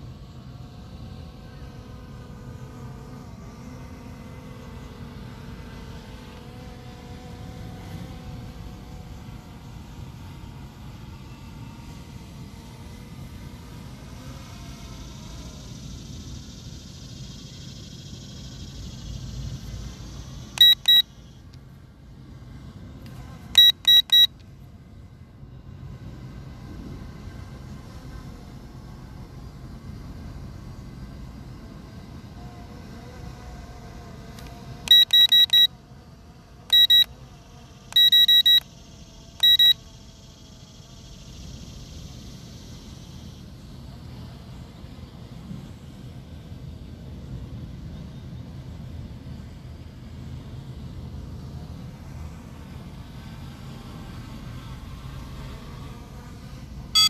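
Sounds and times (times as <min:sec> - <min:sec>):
short electronic beeps: 0:20.6 - 0:21.1, 0:23.6 - 0:24.3, 0:34.9 - 0:35.7, 0:36.7 - 0:37.1, 0:37.9 - 0:38.6, 0:39.4 - 0:39.8.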